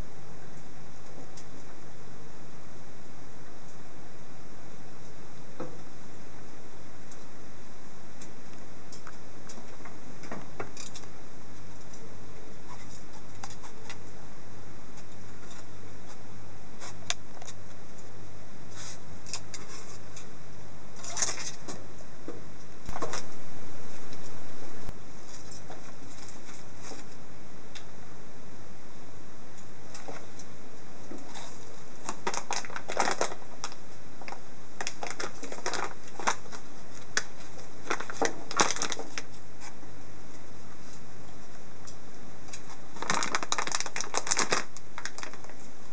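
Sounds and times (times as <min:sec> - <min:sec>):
low steady hum: 0:00.0 - 0:45.9
plastic bags crinkling: 0:32.0 - 0:39.4, 0:42.9 - 0:45.7.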